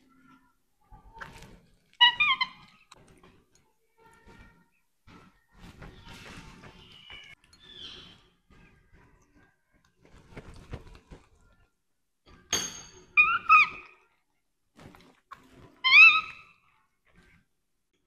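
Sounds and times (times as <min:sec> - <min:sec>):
baby monkey high calls: 0:13.2 - 0:14.0, 0:15.8 - 0:16.5.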